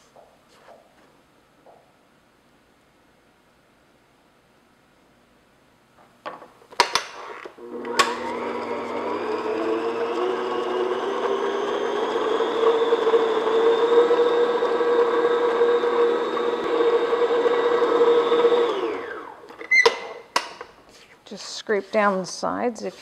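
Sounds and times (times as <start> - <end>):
stand mixer motor running: 7.6 - 19.5.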